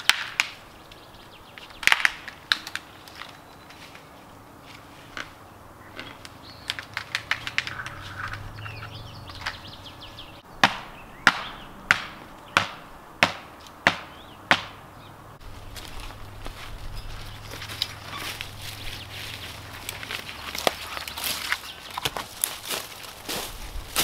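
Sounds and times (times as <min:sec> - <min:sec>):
axe chopping wood: 0:10.6 - 0:14.8.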